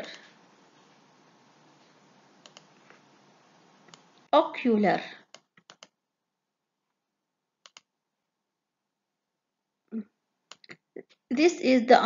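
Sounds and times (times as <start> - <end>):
computer mouse clicks: 2.4 - 3.0, 3.9 - 4.1, 5.2 - 6.0, 7.6 - 7.9.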